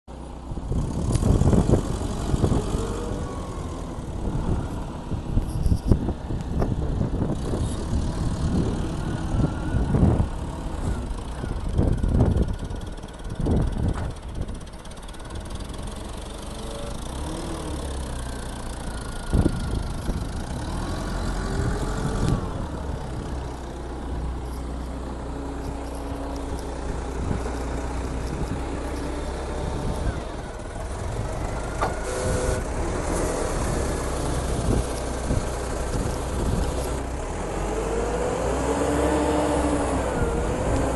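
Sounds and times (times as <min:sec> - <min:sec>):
forklift engine droning: 0:00.1 - 0:40.9
loud low rumbles: 0:19.0 - 0:40.9.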